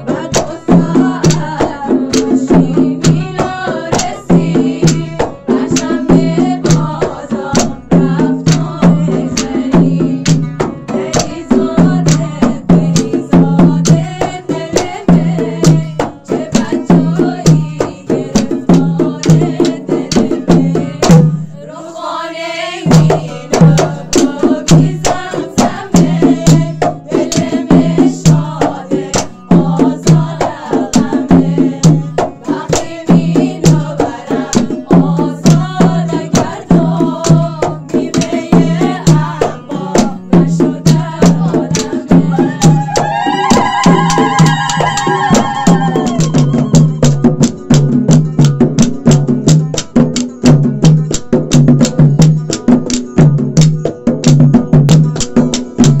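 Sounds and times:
barrel drums beating: 0.0 - 21.6, 22.8 - 56.0
woman singing: 0.0 - 47.6
oud playing: 10.3 - 13.3.

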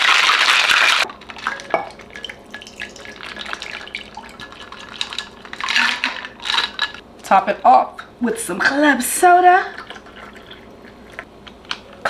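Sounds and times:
ice rattling in cocktail shaker: 0.0 - 7.0
drink pouring into glass: 1.0 - 6.9.

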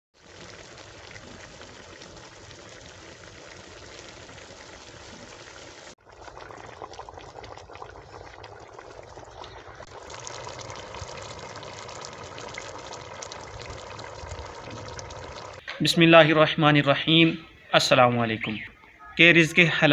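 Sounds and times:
curry bubbling in a pot: 0.2 - 15.6.

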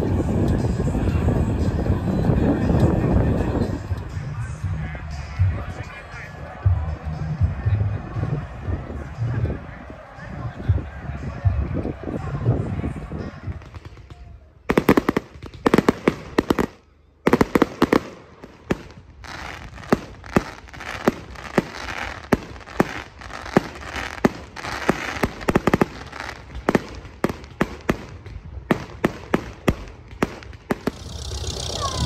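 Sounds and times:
fireworks crackle: 13.3 - 32.0
fireworks bangs: 13.5 - 32.0.

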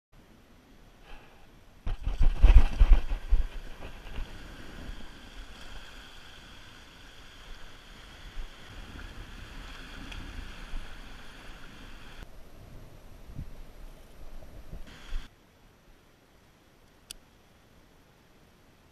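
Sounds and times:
wind rumbling on microphone: 1.8 - 15.3
sea waves washing over rocks: 1.9 - 12.2.

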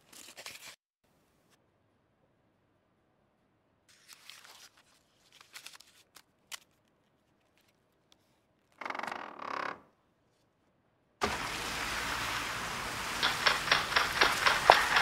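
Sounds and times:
papers rustling: 3.9 - 8.8.

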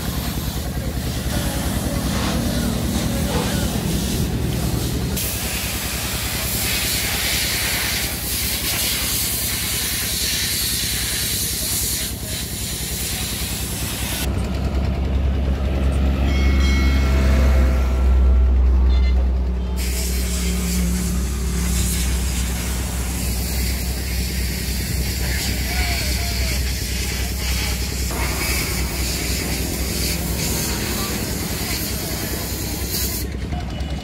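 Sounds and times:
heavy low rumble: 0.0 - 6.7, 13.8 - 33.7
diesel truck engine idling: 0.0 - 34.0.

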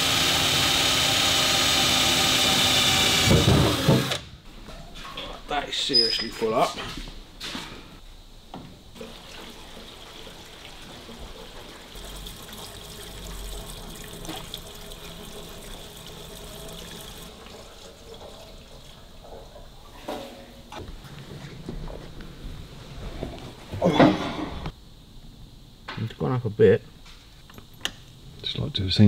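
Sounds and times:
petrol pouring through funnel: 9.0 - 19.3.

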